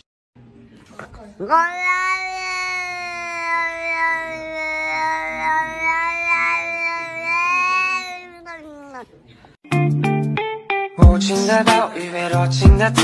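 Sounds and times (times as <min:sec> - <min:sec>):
cat yowling: 0:01.4 - 0:09.2.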